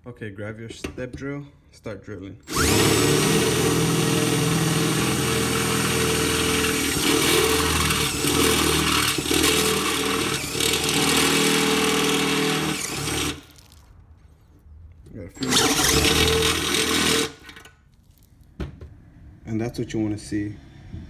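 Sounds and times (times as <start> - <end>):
power drill cutting steel: 2.5 - 13.5, 15.4 - 17.7.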